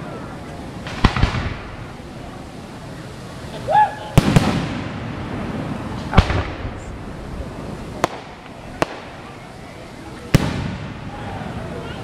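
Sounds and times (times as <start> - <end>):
firework shells booming: 0.8 - 2.0, 4.2 - 9.4, 10.3 - 11.5
sharp firework cracks: 0.8 - 2.1, 4.1 - 9.5, 10.2 - 11.4.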